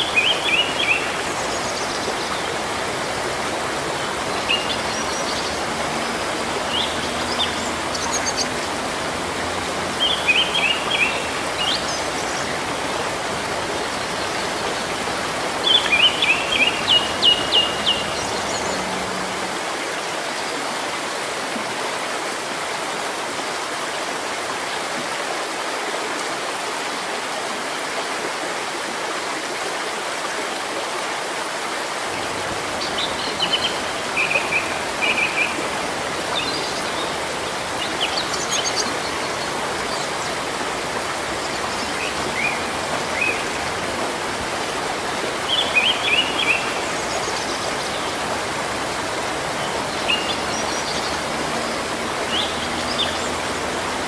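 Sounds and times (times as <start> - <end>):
rain falling on foliage: 0.0 - 54.0.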